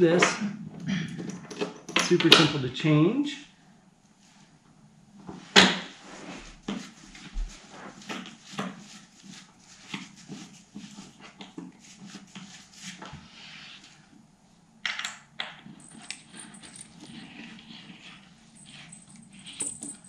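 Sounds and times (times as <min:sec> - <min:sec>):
rustling of parts being handled: 0:15.8 - 0:20.0.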